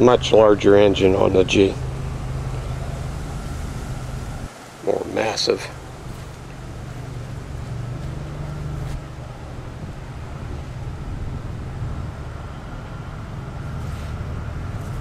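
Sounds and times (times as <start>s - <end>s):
faint steady whine: 0.0s - 15.0s
low engine rumble: 0.0s - 15.0s
wind on the microphone: 5.7s - 12.8s.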